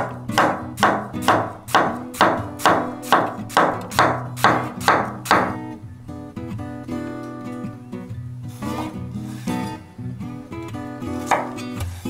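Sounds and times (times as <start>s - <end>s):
knife slicing onion on cutting board: 0.0s - 5.6s, 11.1s - 12.0s.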